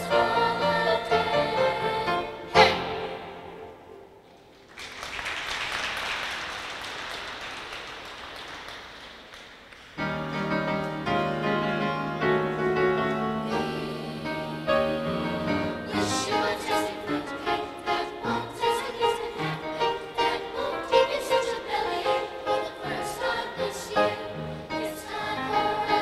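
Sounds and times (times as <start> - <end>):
choir singing: 0.0 - 4.2, 10.2 - 26.0
piano: 0.0 - 4.6, 9.8 - 26.0
audience applauding: 4.5 - 10.0.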